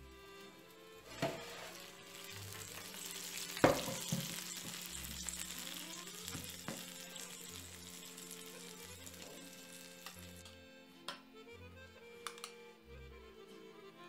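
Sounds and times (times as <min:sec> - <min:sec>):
food sizzling in baking pan: 0:00.0 - 0:10.6
pan clunking down: 0:01.1 - 0:01.8, 0:03.6 - 0:04.5
pan knocking: 0:01.1 - 0:01.8, 0:03.6 - 0:04.8.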